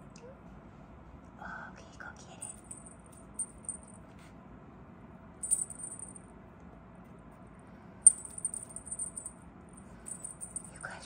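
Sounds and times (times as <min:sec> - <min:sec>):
cat toy jingling: 0:02.4 - 0:04.0, 0:05.4 - 0:06.2, 0:08.1 - 0:09.3, 0:10.0 - 0:10.8.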